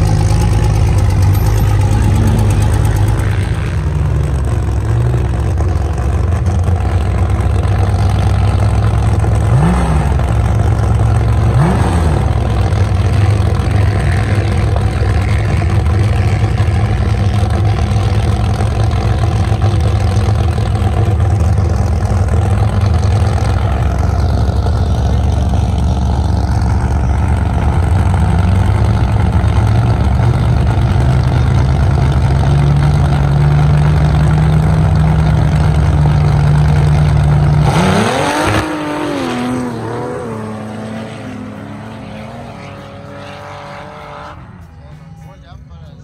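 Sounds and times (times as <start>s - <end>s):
engines at high revs: 0.0s - 45.2s
engine revving up in sweeps: 37.6s - 44.7s.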